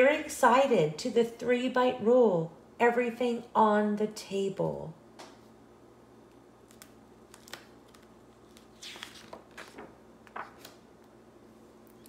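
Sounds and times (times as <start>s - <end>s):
paper page turning: 6.6s - 10.8s.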